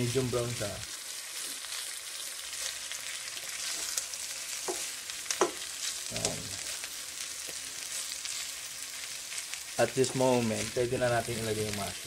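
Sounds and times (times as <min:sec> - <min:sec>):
meat and onions sizzling in a pan: 0:00.0 - 0:12.0
spatula scraping a pan: 0:03.4 - 0:08.6.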